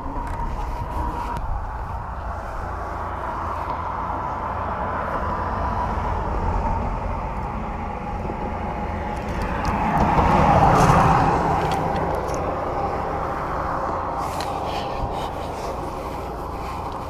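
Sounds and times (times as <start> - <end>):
car passing: 0.0 - 17.0
low traffic rumble: 0.0 - 17.0.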